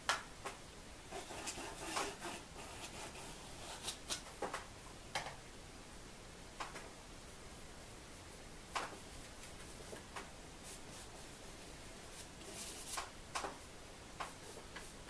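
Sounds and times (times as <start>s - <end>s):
paintbrush rubbing on canvas: 12.0s - 13.0s.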